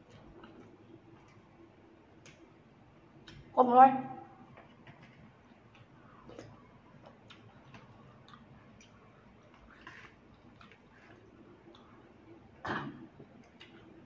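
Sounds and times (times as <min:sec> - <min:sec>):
chewing: 0:05.7 - 0:12.4.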